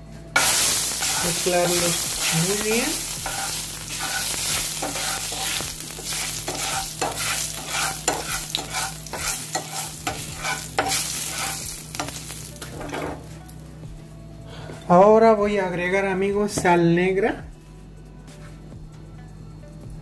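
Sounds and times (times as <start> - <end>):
ghee sizzling: 0.3 - 13.6
spatula scraping frying pan: 0.4 - 13.3.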